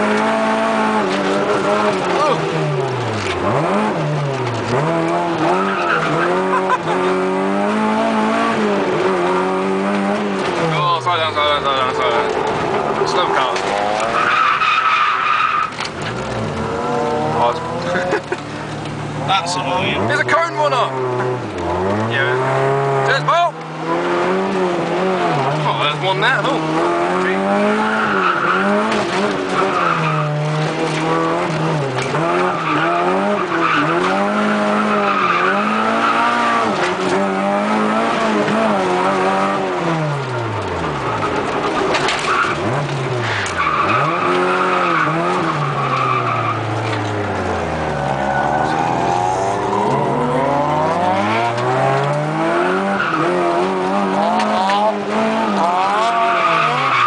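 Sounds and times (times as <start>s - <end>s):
car engine revving: 0.0s - 57.0s
tyres squealing: 10.6s - 23.6s, 40.8s - 57.0s.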